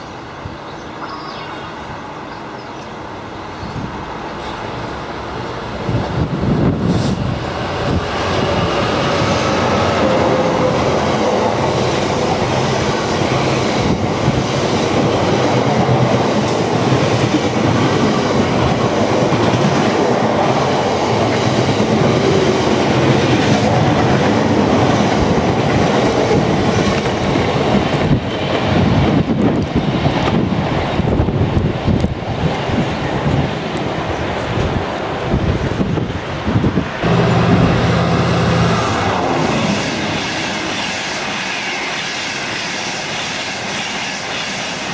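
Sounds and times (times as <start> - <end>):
diesel locomotive passing: 0.0 - 44.9.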